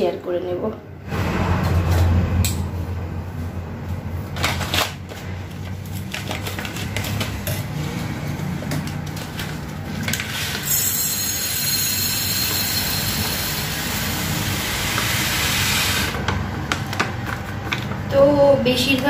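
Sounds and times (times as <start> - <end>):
plastic packet rustling: 4.3 - 10.6.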